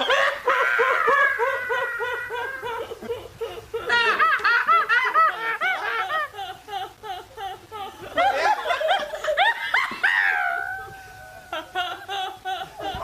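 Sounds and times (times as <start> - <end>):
women laughing: 0.0 - 13.0.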